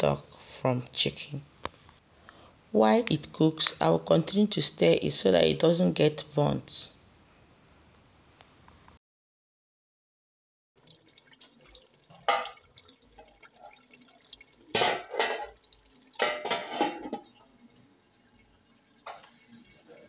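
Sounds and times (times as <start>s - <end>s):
stew bubbling in a pot: 10.8s - 20.0s.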